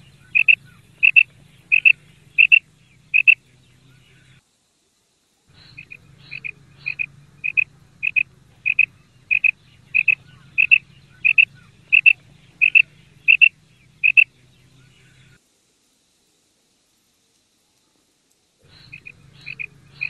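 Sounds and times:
quail calling: 0:00.0 - 0:04.2, 0:05.6 - 0:15.4, 0:18.6 - 0:20.0.

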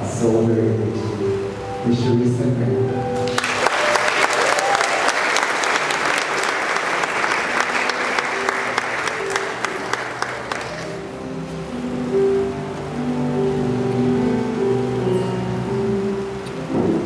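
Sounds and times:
audience applauding: 0:03.2 - 0:11.2.

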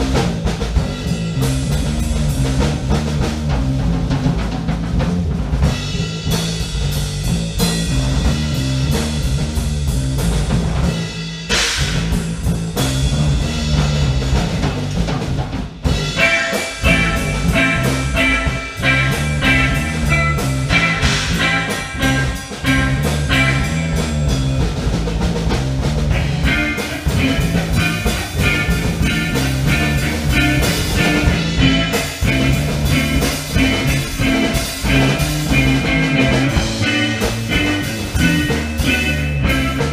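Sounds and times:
drum kit: 0:00.0 - 0:39.9
repeating bass line: 0:16.0 - 0:39.9
guitar line of higher notes: 0:16.1 - 0:25.1, 0:26.1 - 0:39.9.

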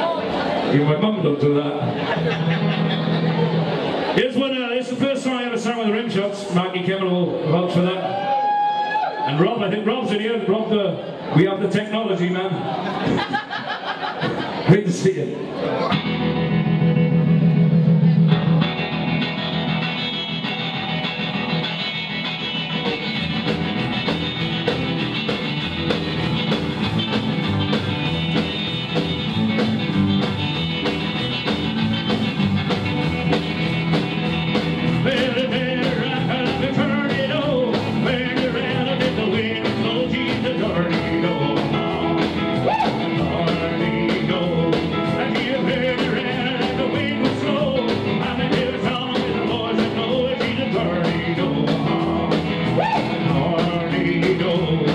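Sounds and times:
drums: 0:00.0 - 0:10.3, 0:11.2 - 0:54.9
rockabilly band playing: 0:00.0 - 0:54.9
man singing: 0:34.9 - 0:54.9.

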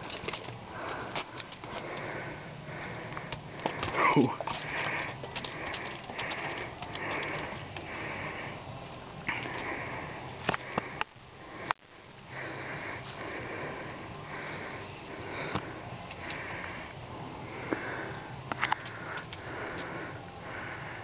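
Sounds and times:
dog breathing and sniffing: 0:00.8 - 0:08.5.

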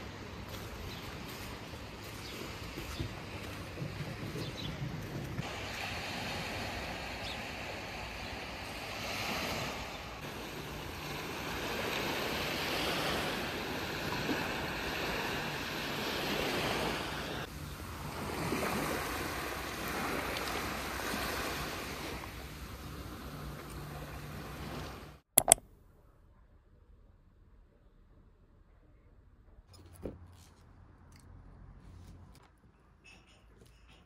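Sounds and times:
small waves washing onto beach: 0:05.4 - 0:25.2.

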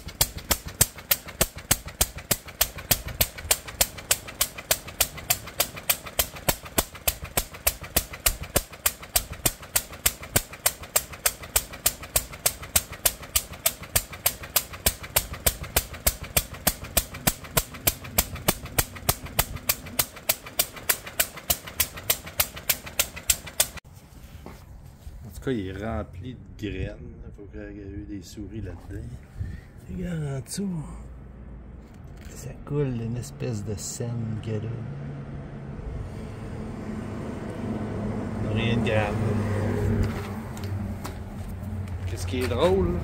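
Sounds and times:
single-cylinder engine running: 0:00.0 - 0:23.9, 0:34.8 - 0:43.0.

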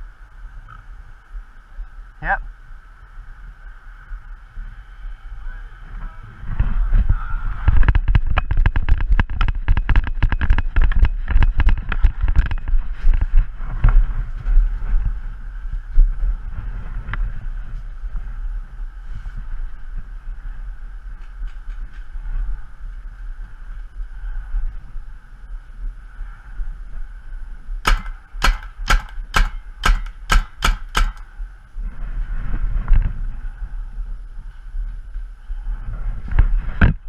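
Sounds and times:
wind rumble on microphone: 0:00.0 - 0:37.0
paintball marker firing pops: 0:27.8 - 0:31.3.

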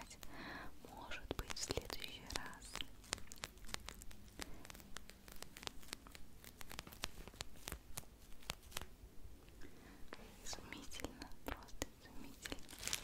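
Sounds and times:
plastic packaging crinkling: 0:01.2 - 0:08.9, 0:12.2 - 0:13.0.

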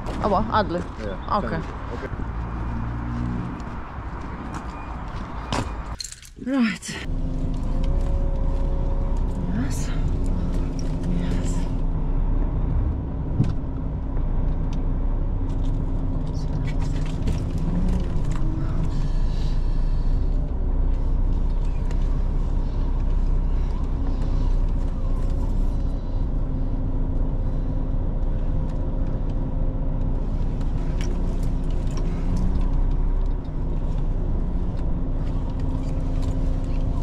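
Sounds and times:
truck diesel engine running: 0:14.0 - 0:37.0.

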